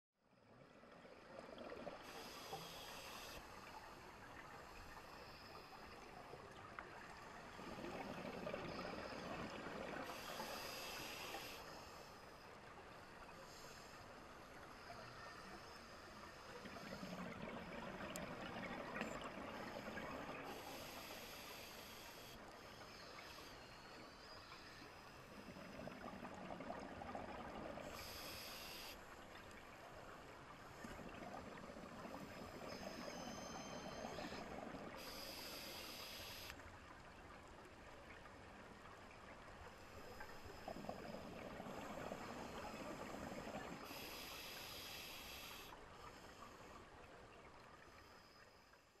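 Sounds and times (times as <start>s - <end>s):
regulator inhale hissing: 2.0s - 3.8s, 10.0s - 12.3s, 20.5s - 23.7s, 27.9s - 29.0s, 35.0s - 36.6s, 42.2s - 46.7s.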